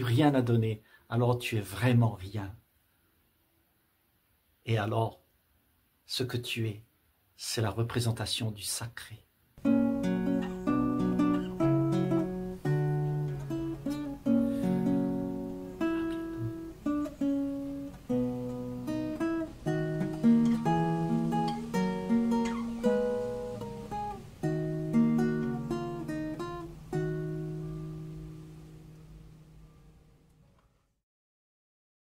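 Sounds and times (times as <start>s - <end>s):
acoustic guitar music: 9.6s - 30.4s.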